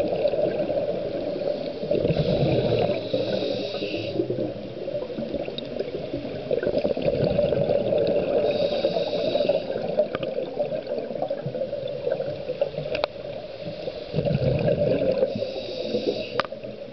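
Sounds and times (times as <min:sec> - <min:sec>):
muffled underwater wash: 0:00.0 - 0:16.9
high hissing: 0:01.4 - 0:04.3, 0:08.4 - 0:09.8, 0:15.3 - 0:16.4.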